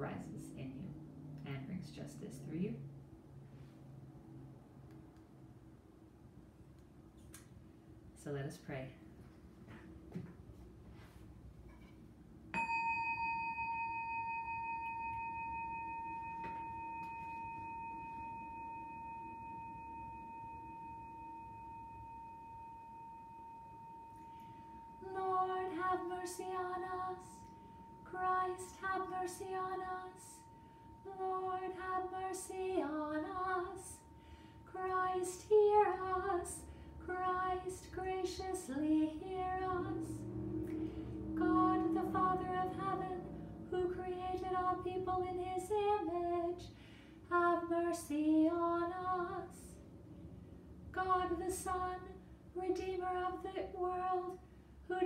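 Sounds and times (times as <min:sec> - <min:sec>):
woman chanting: 0:00.0 - 0:02.9, 0:25.0 - 0:27.5, 0:28.1 - 0:30.5, 0:31.1 - 0:34.1, 0:34.7 - 0:40.3, 0:41.2 - 0:46.6
chime ringing: 0:12.6 - 0:34.8.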